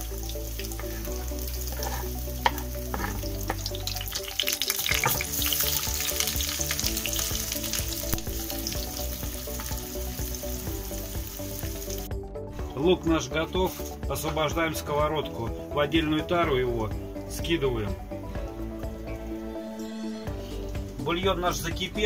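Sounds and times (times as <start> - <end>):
onion sizzling in a frying pan: 0.0 - 12.1
wooden spatula scraping and tapping: 0.6 - 3.7.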